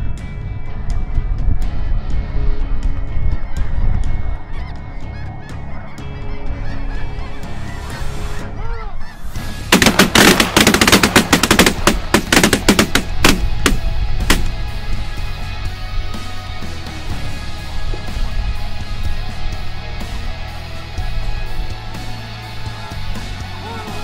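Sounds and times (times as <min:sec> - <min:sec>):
geese honking: 0:04.3 - 0:14.5.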